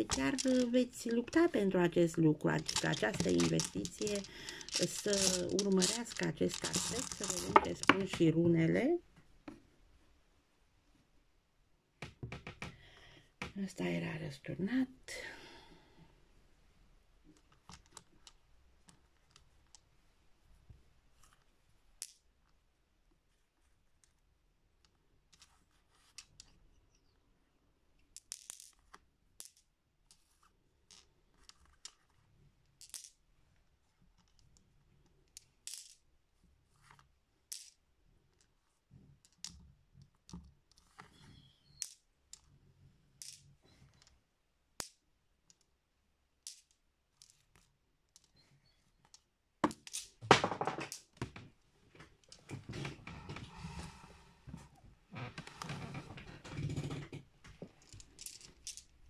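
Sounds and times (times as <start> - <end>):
stones clattering: 0.0 - 1.6, 2.5 - 8.3, 49.6 - 51.1
stones clicking on a tabletop: 0.0 - 1.6, 2.5 - 8.4, 22.0 - 22.3, 28.1 - 33.2, 34.2 - 36.0, 36.8 - 38.6, 39.2 - 42.5, 43.2 - 44.2, 44.8 - 45.7, 46.4 - 48.4, 49.0 - 51.5, 55.3 - 59.0.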